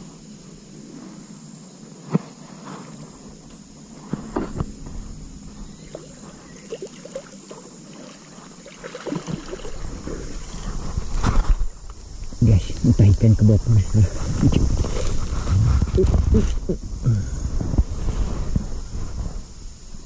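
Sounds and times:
high drone of insects: 0.0 - 20.0
fish splashing in shallow water: 5.8 - 11.8.

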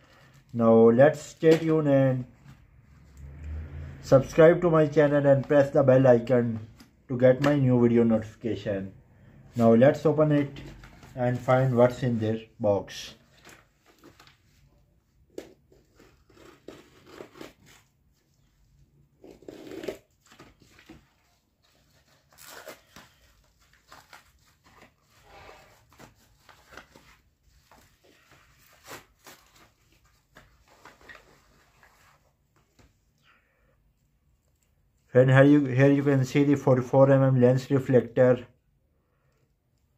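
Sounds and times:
envelope tearing and rustling: 15.3 - 18.0, 19.2 - 32.3.

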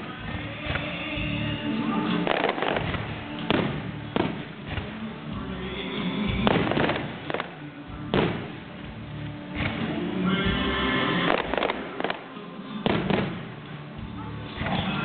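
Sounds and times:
fireworks bangs: 0.0 - 10.2, 11.2 - 13.8
music playing: 0.0 - 15.0.

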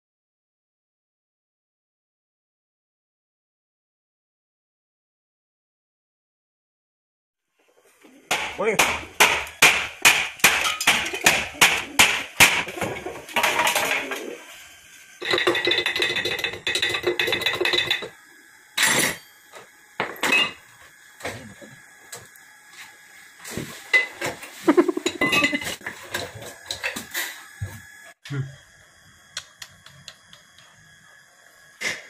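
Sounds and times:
metal clinking and tapping: 15.2 - 18.1.

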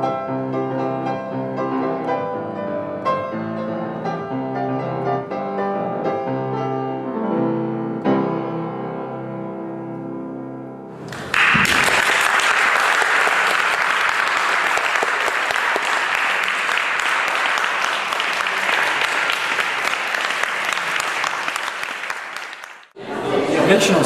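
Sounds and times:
audience clapping: 11.0 - 23.0.

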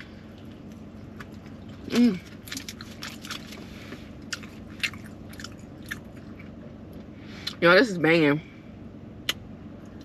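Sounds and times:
person chewing food: 0.0 - 7.6.

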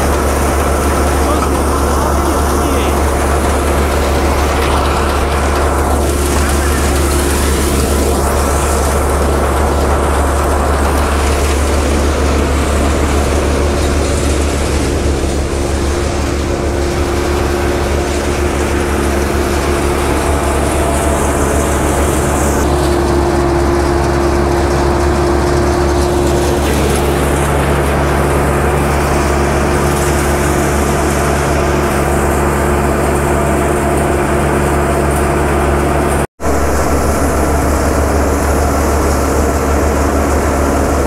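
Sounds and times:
thresher machine running: 0.0 - 41.0.

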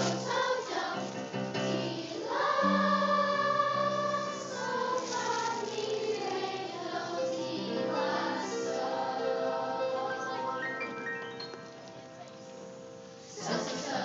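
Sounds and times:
children's choir singing: 0.0 - 11.4, 13.2 - 14.0.

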